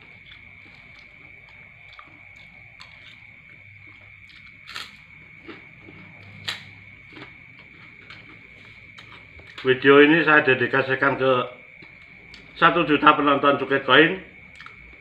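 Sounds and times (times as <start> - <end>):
chewing: 0.0 - 9.7, 14.5 - 15.0
cracker crunching: 0.1 - 9.8.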